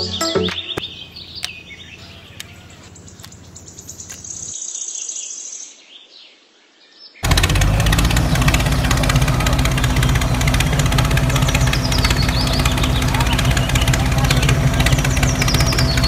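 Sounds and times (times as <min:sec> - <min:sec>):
birds chirping: 0:00.0 - 0:05.8, 0:07.0 - 0:16.0
sharp clicks: 0:00.5 - 0:04.5
small engine chugging: 0:00.9 - 0:04.5, 0:07.2 - 0:16.0.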